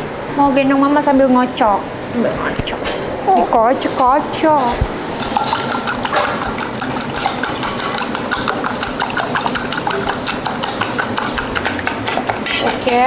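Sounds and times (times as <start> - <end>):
whisk clattering in metal bowl: 5.2 - 13.0.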